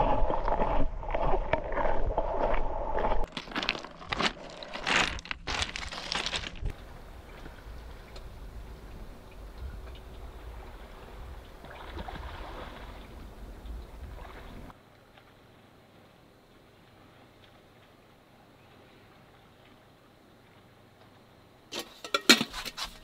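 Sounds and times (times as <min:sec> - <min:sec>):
low wind rumble: 0:00.0 - 0:03.3, 0:04.5 - 0:14.7
pebbles crunching and clattering: 0:03.2 - 0:06.8.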